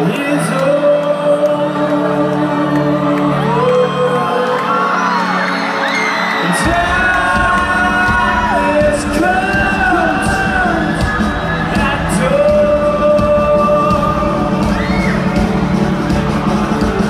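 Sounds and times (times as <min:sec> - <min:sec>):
person singing: 0:00.0 - 0:17.0
crowd whooping: 0:02.4 - 0:17.0
live rock band playing: 0:06.4 - 0:17.0.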